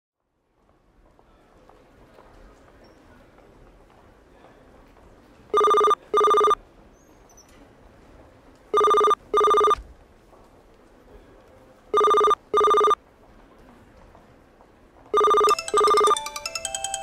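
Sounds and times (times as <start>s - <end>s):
telephone double ring: 8.8s - 9.8s, 12.0s - 13.0s, 15.2s - 17.0s.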